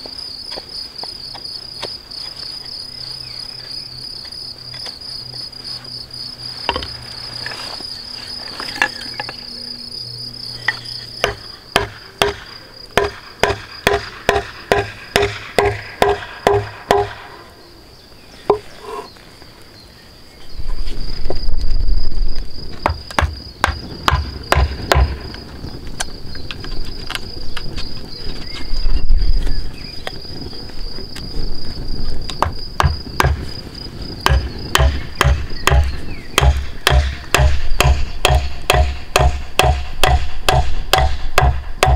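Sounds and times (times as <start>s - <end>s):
crickets chirping: 0.0s - 41.9s
mallet striking wood: 11.2s - 17.4s, 22.8s - 25.2s, 32.4s - 33.4s, 34.2s - 41.9s.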